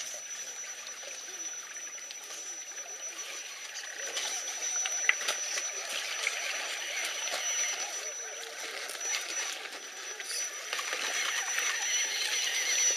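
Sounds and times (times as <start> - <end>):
creek water running: 0.0 - 12.9
high whine: 0.0 - 12.9.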